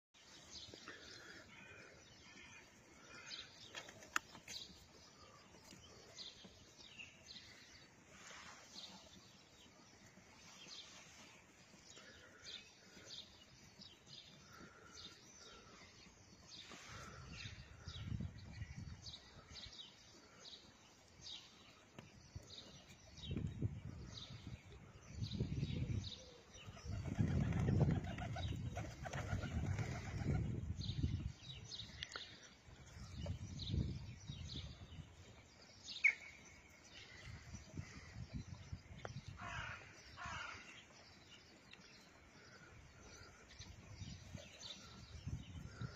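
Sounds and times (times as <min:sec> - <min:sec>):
small birds chirping: 0:00.2 - 0:45.9
pigeon wings flapping: 0:27.0 - 0:30.4.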